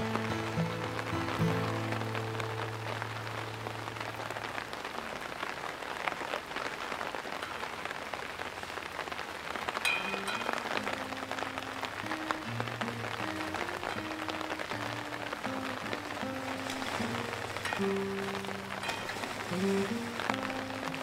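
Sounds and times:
heavy rain falling: 0.0s - 21.0s
raindrops pattering on water: 0.0s - 21.0s
soft background music: 10.1s - 21.0s.

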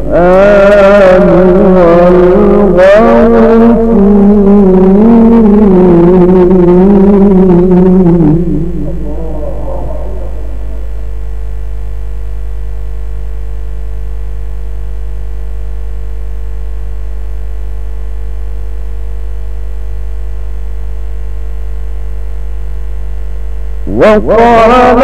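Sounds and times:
low electrical hum: 0.0s - 25.0s
faint high tones: 7.0s - 11.4s.

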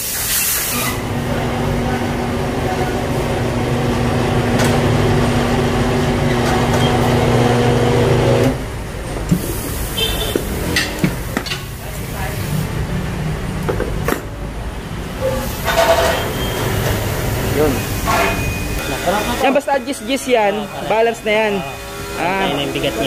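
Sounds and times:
wheel balancing machine motor humming: 1.0s - 8.8s.

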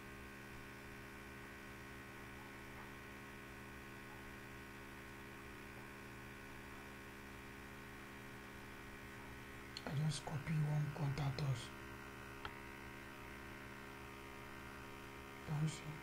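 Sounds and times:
faint electrical mains hum: 0.0s - 16.0s.

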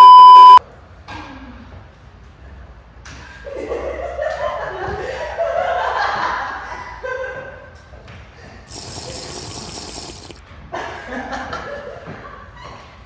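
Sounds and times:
steady hiss: 8.7s - 10.4s.

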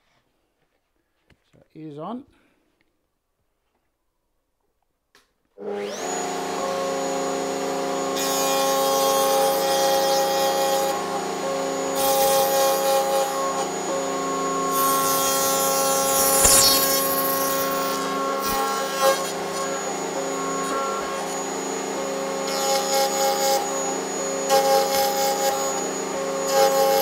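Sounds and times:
router bit cutting wood: 5.6s - 27.0s
router motor whine: 5.6s - 27.0s.

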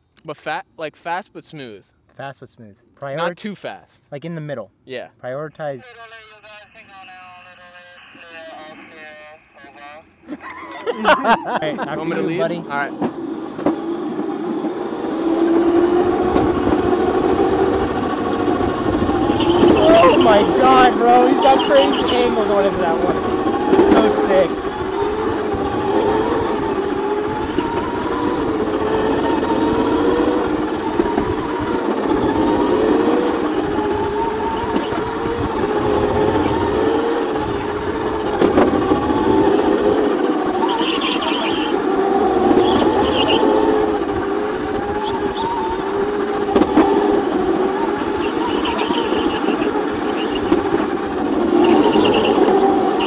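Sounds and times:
electric motor whining: 10.1s - 53.0s
tyres squealing on pavement: 16.5s - 35.3s, 40.5s - 43.8s, 47.8s - 50.7s, 51.5s - 53.0s.

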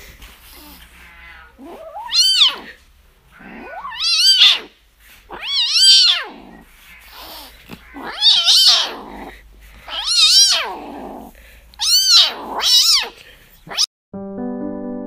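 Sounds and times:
kitten meowing loudly: 1.2s - 2.7s, 3.6s - 4.7s, 5.3s - 6.4s, 7.9s - 9.1s, 9.9s - 10.8s, 11.8s - 13.9s.

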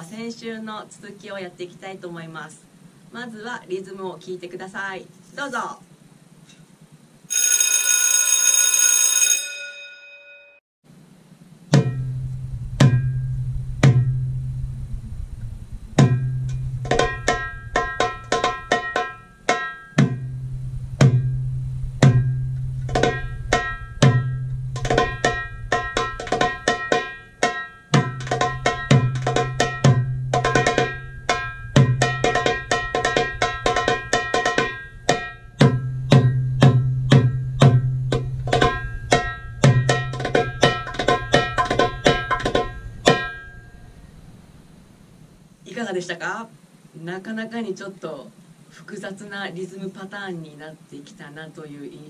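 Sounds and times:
goblet drum playing: 11.7s - 44.4s.

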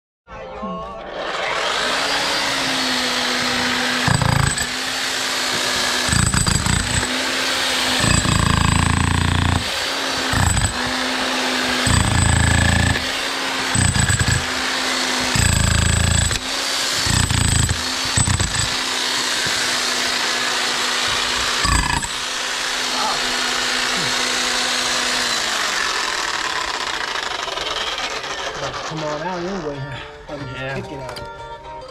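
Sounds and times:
demolition hammer motor hum: 1.2s - 29.4s
chisel rattling on concrete block: 5.6s - 7.1s, 7.9s - 13.1s, 13.7s - 14.6s.

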